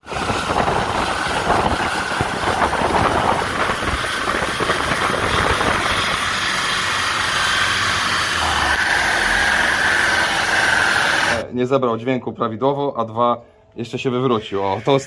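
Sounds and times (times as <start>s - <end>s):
turbocharged engine under load: 0.0s - 11.5s.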